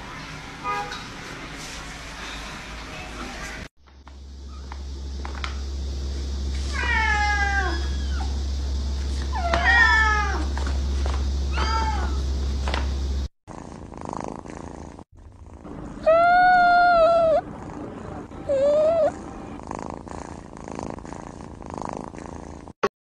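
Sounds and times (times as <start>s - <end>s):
steady low hum: 1.2s - 13.9s, 15.2s - 21.7s
soft purring: 13.5s - 22.8s
kitten mewing: 16.0s - 17.5s.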